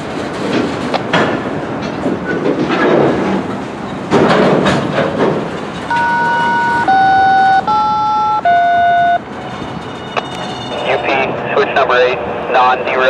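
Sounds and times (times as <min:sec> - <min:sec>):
train wheels rumbling and clattering: 0:00.0 - 0:12.9
loud squeal changing pitch: 0:05.9 - 0:11.1.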